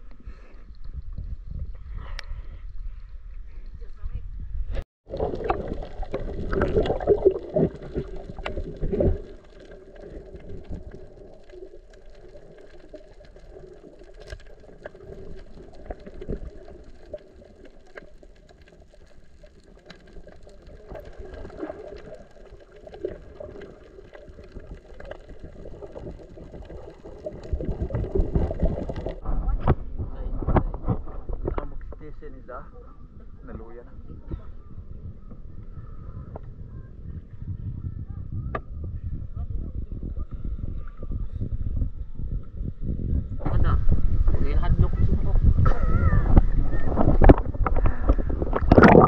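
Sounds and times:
dull underwater hum: 0.0s - 49.0s
faint clicks: 8.0s - 29.2s.

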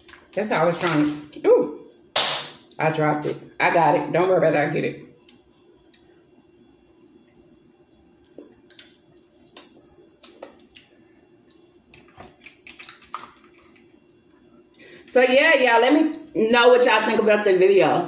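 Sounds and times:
low steady hum: 0.0s - 18.0s
wet eating squishes and clicks: 5.2s - 6.1s, 6.9s - 14.8s.

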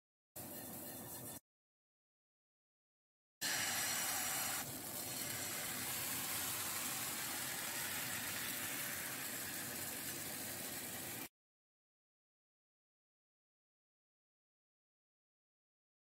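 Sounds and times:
batter sizzling in a frying pan: 3.4s - 11.3s.

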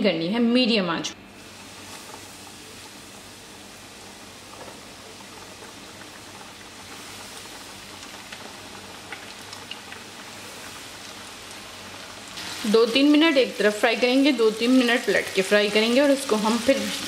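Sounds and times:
chicken frying in hot oil: 1.4s - 17.0s
oil popping and crackling: 4.4s - 12.5s.

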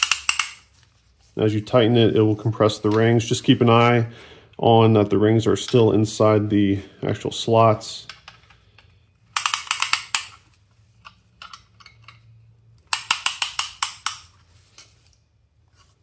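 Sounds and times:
piston ring compressor ratchet clicking: 0.0s - 0.6s, 8.4s - 14.4s.

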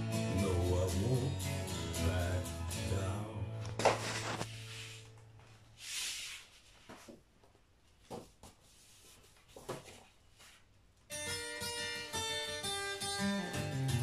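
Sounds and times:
vinyl record clicks: 3.6s - 4.5s.

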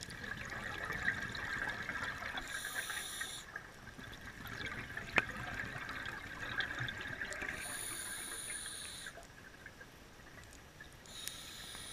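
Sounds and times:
hissing regulator inhale: 2.4s - 3.6s, 7.6s - 9.2s, 11.1s - 11.9s.

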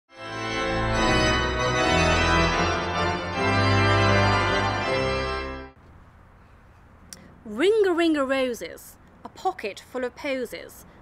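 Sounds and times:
organ chords: 0.1s - 5.8s.

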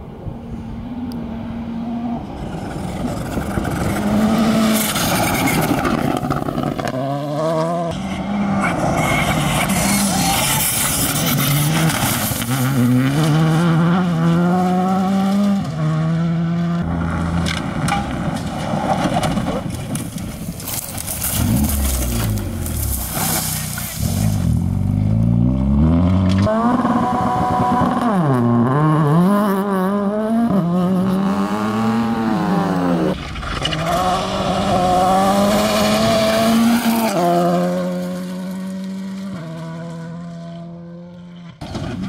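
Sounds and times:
rally car engines revving: 0.0s - 42.0s
tyres on loose gravel: 2.4s - 7.3s, 8.1s - 13.4s, 17.0s - 25.0s.

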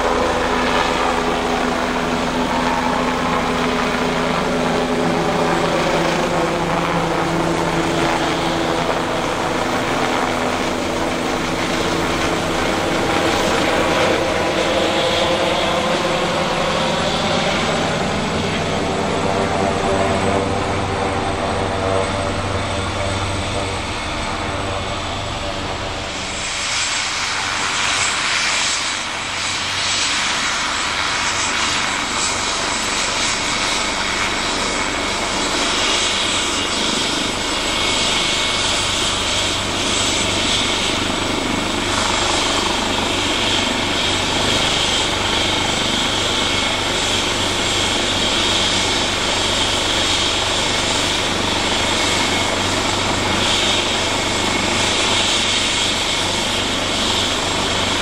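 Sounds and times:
helicopter engine and rotor: 0.0s - 58.0s
high turbine whine: 0.0s - 58.0s.

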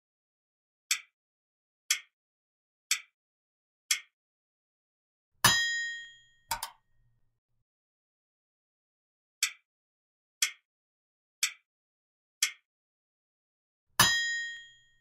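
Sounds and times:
timer ticks: 0.9s - 1.1s, 1.9s - 2.2s, 2.9s - 3.1s, 3.9s - 4.2s, 9.4s - 9.6s, 10.4s - 10.7s, 11.4s - 11.7s, 12.4s - 12.7s
loud ringing ding: 5.5s - 6.6s.

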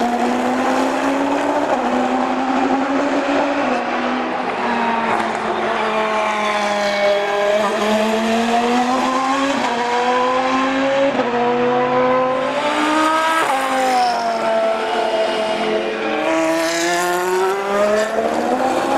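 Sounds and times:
race car passing: 0.0s - 18.9s
racing car engine accelerating: 6.2s - 13.9s.

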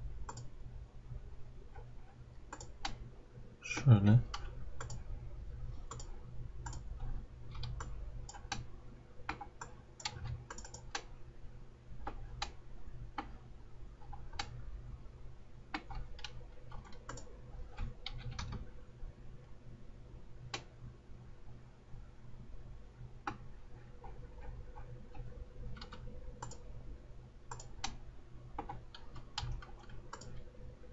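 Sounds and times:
low steady hum: 0.0s - 30.9s
computer mouse clicks: 0.2s - 0.5s, 2.5s - 3.0s, 3.7s - 5.1s, 5.9s - 8.7s, 9.3s - 11.1s, 12.0s - 13.4s, 14.0s - 14.6s, 15.7s - 18.6s, 23.2s - 23.4s, 24.0s - 26.6s, 27.5s - 28.0s, 28.6s - 30.4s
keyboard keystrokes: 27.5s - 28.0s.

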